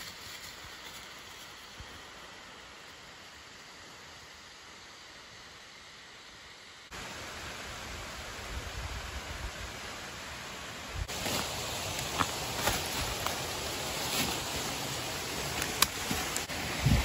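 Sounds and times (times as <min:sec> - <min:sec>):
dry leaves crackling underfoot: 0:00.0 - 0:02.8, 0:11.0 - 0:17.0.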